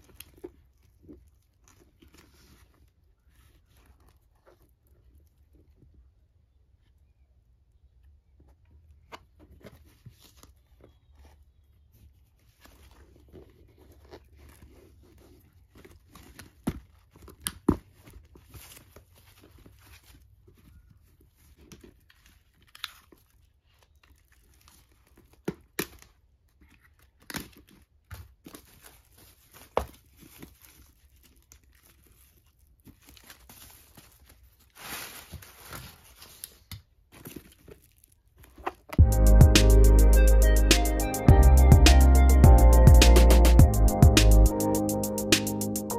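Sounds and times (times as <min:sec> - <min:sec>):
paper rustling: 0:00.0 - 0:06.0, 0:08.5 - 0:39.0.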